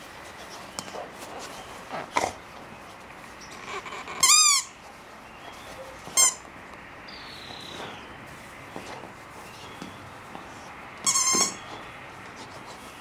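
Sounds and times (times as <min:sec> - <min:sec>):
rubber squeaky toy squeaking: 0:03.8 - 0:04.7, 0:06.2 - 0:06.4, 0:11.0 - 0:11.6.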